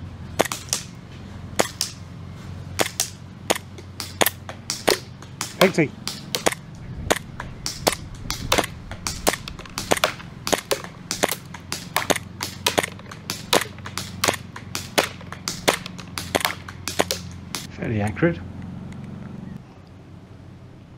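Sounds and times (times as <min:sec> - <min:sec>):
airsoft pistol shots: 0:00.4 - 0:01.0, 0:01.6 - 0:02.0, 0:02.8 - 0:17.7.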